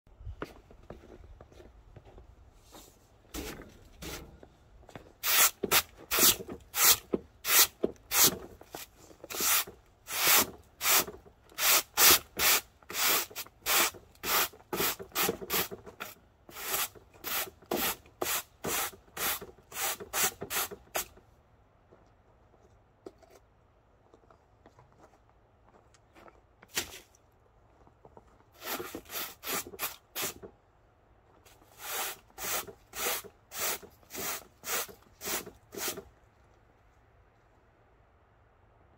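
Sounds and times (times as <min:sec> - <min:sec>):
broom sweeping snow: 0:05.2 - 0:15.7, 0:16.5 - 0:21.1, 0:28.6 - 0:30.4, 0:31.6 - 0:36.0.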